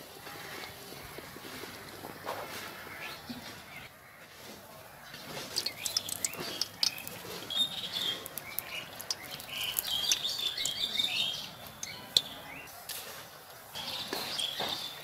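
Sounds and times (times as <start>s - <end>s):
small birds chirping: 0.5s - 12.8s, 13.7s - 15.0s
deep-frying sizzle in oil: 4.9s - 12.4s
oil crackling and popping: 5.1s - 12.4s.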